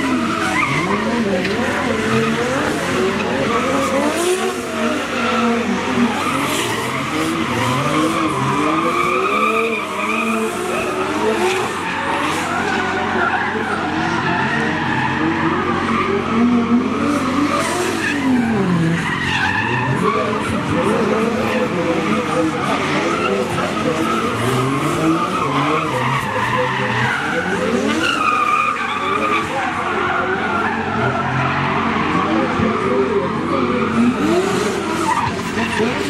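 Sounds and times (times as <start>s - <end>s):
car engines revving: 0.0s - 36.0s
tyres squealing: 4.8s - 32.4s.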